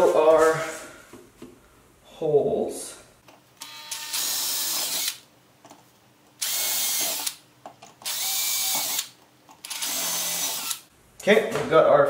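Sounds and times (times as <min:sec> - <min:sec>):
cordless drill whirring: 0:03.6 - 0:05.2, 0:06.4 - 0:07.4, 0:08.0 - 0:10.8.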